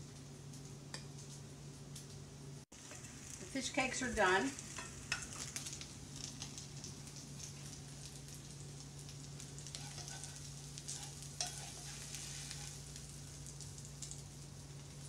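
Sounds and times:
food crackling in frying pan: 0.0s - 15.0s.

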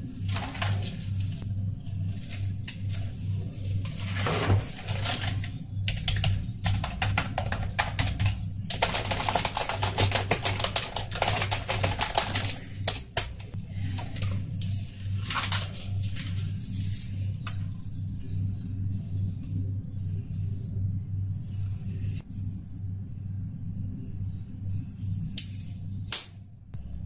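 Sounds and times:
rapid keyboard key clicks: 5.8s - 13.5s.

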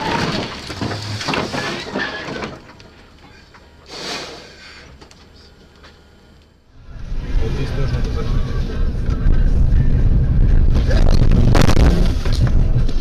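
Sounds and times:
car crash impact and scraping: 0.0s - 2.8s.

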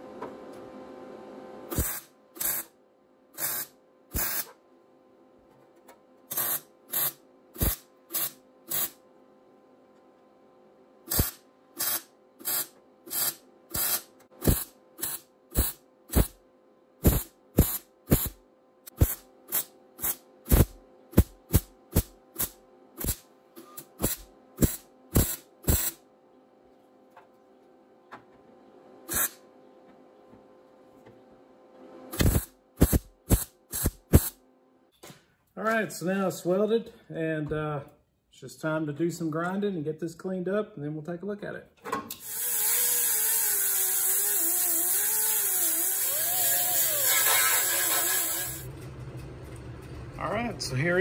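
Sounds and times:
welder bursts: 1.7s - 2.7s, 3.4s - 4.6s, 6.3s - 9.0s, 11.1s - 16.4s, 17.0s - 26.0s, 29.1s - 29.4s, 32.1s - 34.4s, 42.2s - 48.7s.

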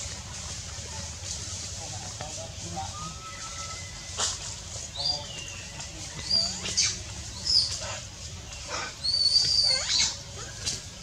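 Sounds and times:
baby monkey crying squeaks: 9.0s - 10.2s.

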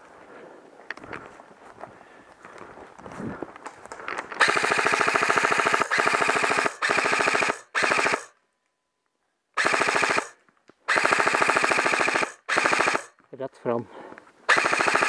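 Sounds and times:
airsoft rifle automatic fire: 4.4s - 8.4s, 9.6s - 13.1s, 14.5s - 15.0s.

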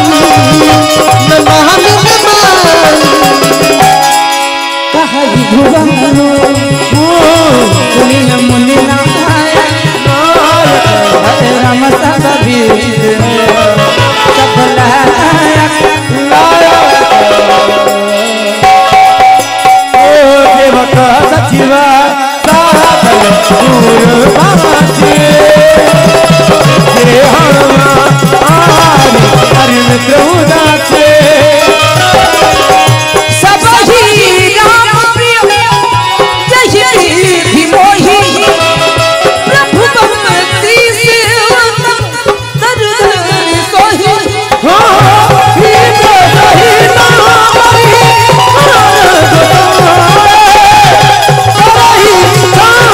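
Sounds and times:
dholak drumming: 0.0s - 52.9s
harmonium: 0.0s - 52.9s
keyed banjo: 0.0s - 52.9s
person singing: 0.0s - 52.9s.

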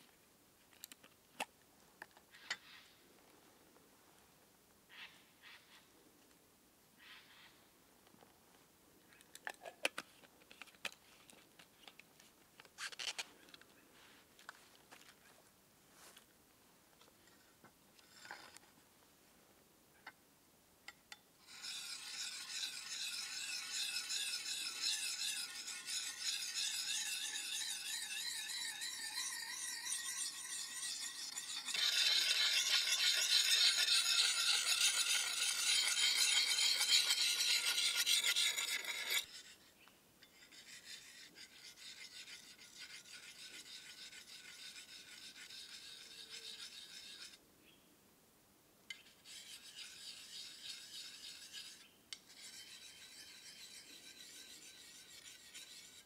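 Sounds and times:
blade honed with sharpening stone: 21.4s - 47.4s, 48.9s - 56.0s.

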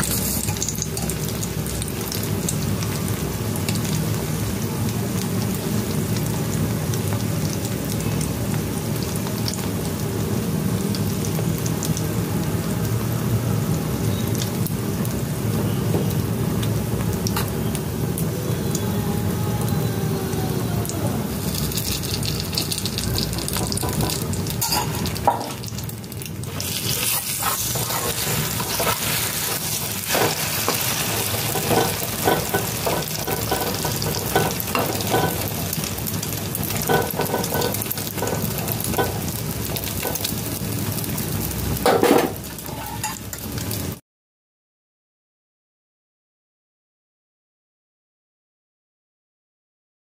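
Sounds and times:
bread sizzling in oil: 0.0s - 19.7s, 20.3s - 44.0s
utensils scraping and tapping pan: 22.6s - 25.6s, 26.7s - 35.5s, 36.7s - 40.3s, 41.9s - 43.3s.

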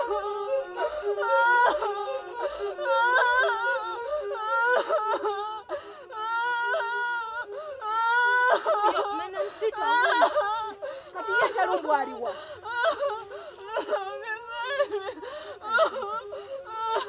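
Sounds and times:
woman wailing and sobbing: 0.0s - 17.0s.

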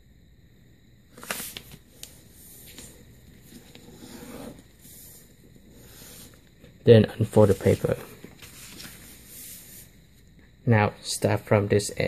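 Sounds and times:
paper crackling and rustling: 1.2s - 1.8s, 7.3s - 9.3s.

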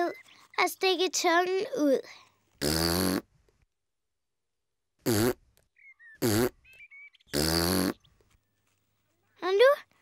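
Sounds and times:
cartoon child blowing raspberry: 2.6s - 3.3s, 5.0s - 5.4s, 6.2s - 6.6s, 7.3s - 8.0s.

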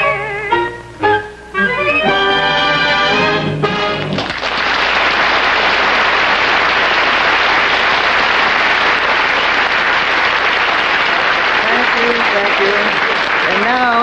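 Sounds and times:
audience applauding: 3.8s - 14.0s.

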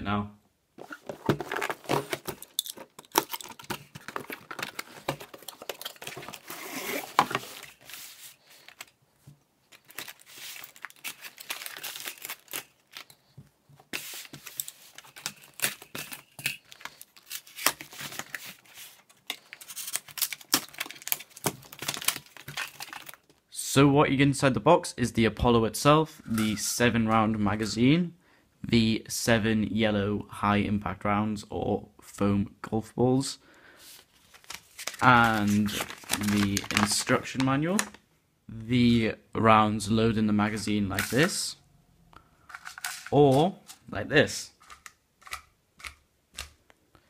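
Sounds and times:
cardboard rustling and crinkling: 0.8s - 23.4s, 33.9s - 38.0s
packing tape tearing: 1.4s - 8.9s, 9.7s - 13.2s, 14.0s - 23.2s, 34.4s - 36.9s.

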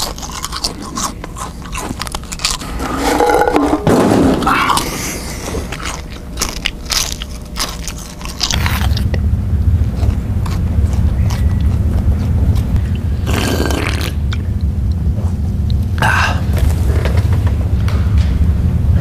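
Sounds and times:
crunching potato chips: 0.0s - 3.3s, 4.4s - 9.2s, 9.8s - 14.4s
steady low rumble: 0.0s - 19.0s.

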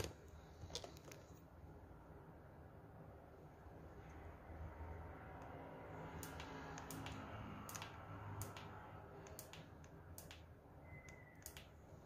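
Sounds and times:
sharp clicks: 6.2s - 11.8s.

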